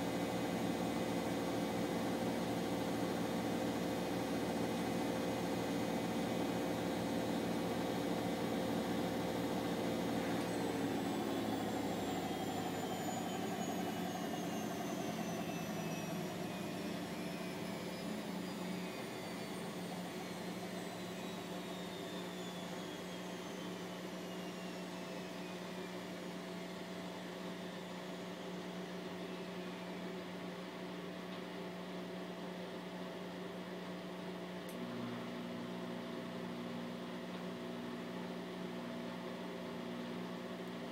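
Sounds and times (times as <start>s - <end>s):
washing machine spin whine: 0.0s - 40.9s
click: 34.6s - 34.8s.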